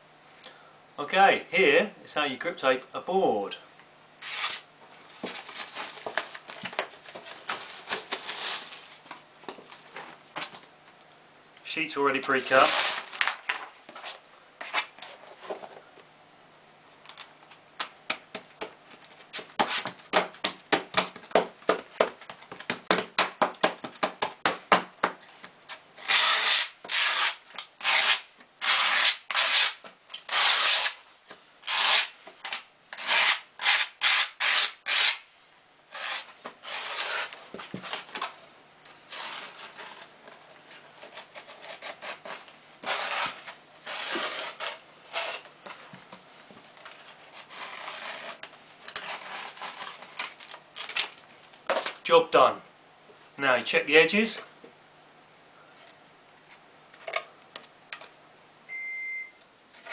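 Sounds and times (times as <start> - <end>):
grip tape rasping: 4.2 - 4.6, 25.7 - 31.0, 31.6 - 35.2, 35.9 - 38.3, 39.1 - 40.1, 40.7 - 45.5, 46.8 - 51.2.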